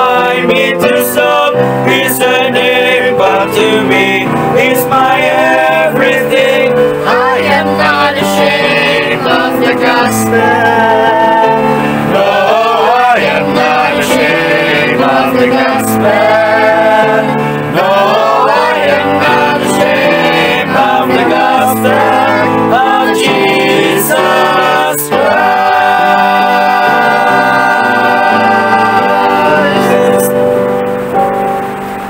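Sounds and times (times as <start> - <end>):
gospel singing with instrumental backing: 0.0 - 32.0.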